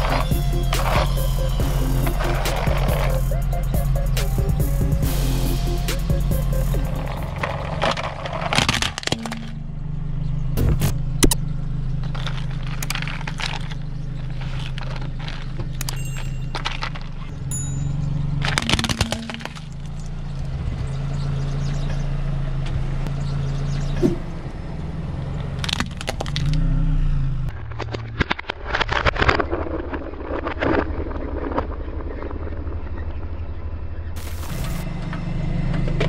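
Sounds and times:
car engine running: 0.0 - 28.5, 30.8 - 36.0
plastic cracking and snapping: 25.6 - 26.6.

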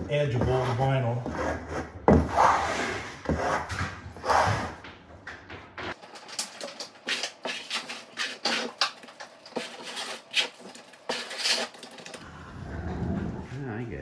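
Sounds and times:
trowel scraping wet compound: 6.8 - 12.2.

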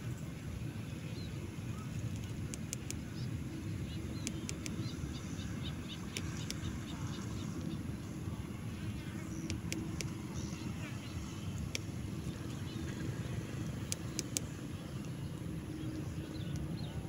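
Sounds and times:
small birds chirping: 1.0 - 17.0
sharp ticks: 2.1 - 3.0, 4.2 - 4.9, 9.4 - 10.2, 11.6 - 11.9, 13.6 - 14.5.

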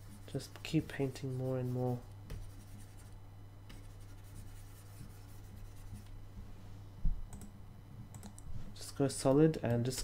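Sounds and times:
stylus scratching on tablet: 0.0 - 6.1.

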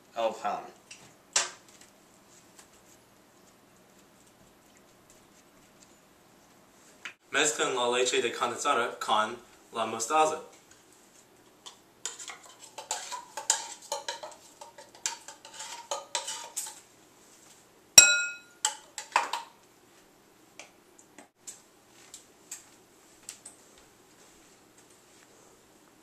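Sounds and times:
spoon scraping tin can: 12.0 - 16.8
spoon clinking on ceramic bowl: 18.0 - 18.8.

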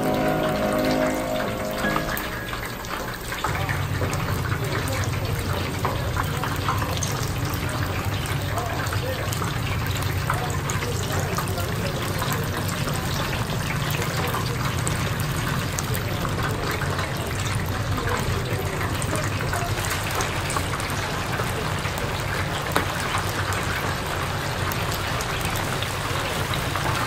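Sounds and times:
oil sizzling and crackling: 0.0 - 27.0.

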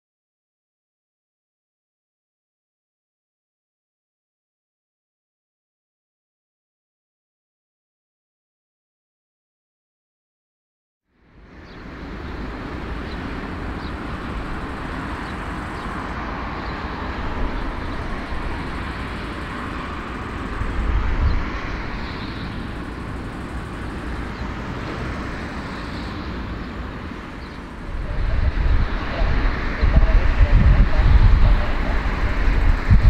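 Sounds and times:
distant jet engines rumbling: 11.2 - 33.0.

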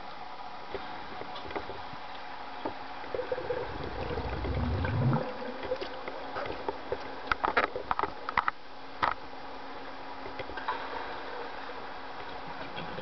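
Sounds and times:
water moving underwater: 2.9 - 7.3
low surging whoosh: 3.4 - 5.6.

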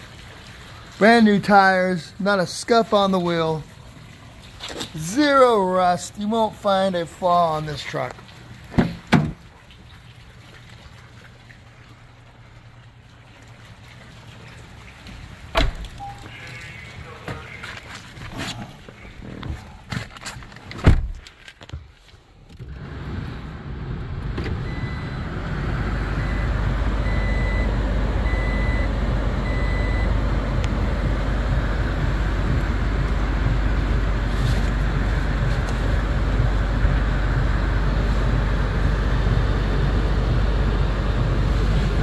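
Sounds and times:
short reversing beeps: 16.0 - 16.3, 26.2 - 30.2
truck running hum: 22.7 - 42.0.

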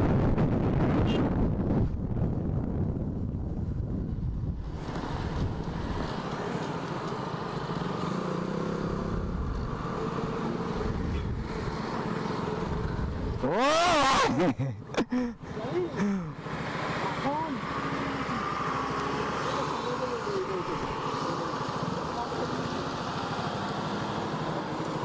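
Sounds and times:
wind rushing: 0.0 - 6.2
motorcycle running: 1.4 - 14.5, 15.4 - 25.0
motorcycle engine revs: 4.9 - 14.5.

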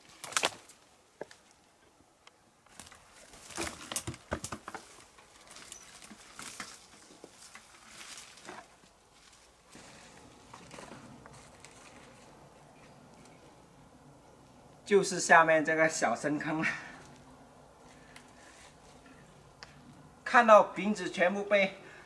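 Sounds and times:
footsteps on dry grass and twigs: 2.7 - 13.0
dry brush rustling: 2.7 - 13.3.

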